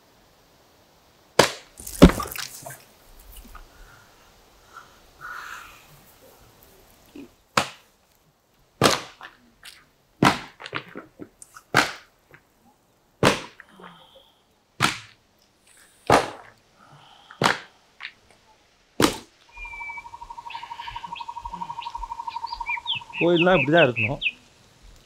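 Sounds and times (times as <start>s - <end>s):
sharp cracks: 1.4s - 2.8s, 6.9s - 8.2s, 8.8s - 12.6s, 13.2s - 13.8s, 14.8s - 18.4s, 19.0s - 19.6s.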